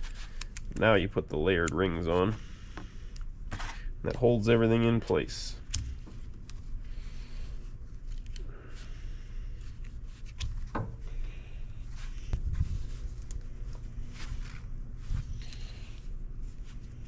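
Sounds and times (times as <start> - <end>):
steady low hum: 0.0 - 17.0
paper rustling: 11.8 - 17.0.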